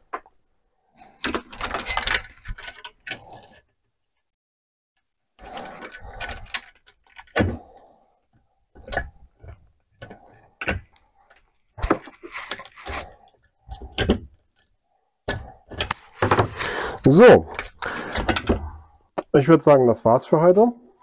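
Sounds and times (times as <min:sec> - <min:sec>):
metallic clatter of chainsaw bar: 0:01.2 - 0:03.6.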